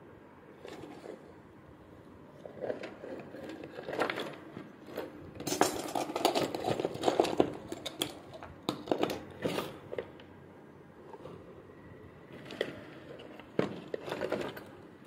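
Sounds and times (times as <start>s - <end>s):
hands rummaging through tools: 2.4s - 10.3s, 12.3s - 15.0s.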